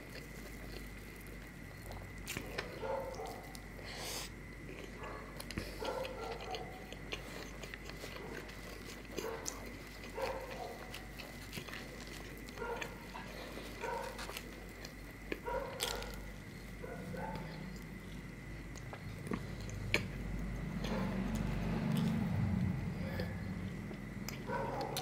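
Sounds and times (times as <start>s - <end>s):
wet chewing and lip smacks: 0.0s - 22.2s.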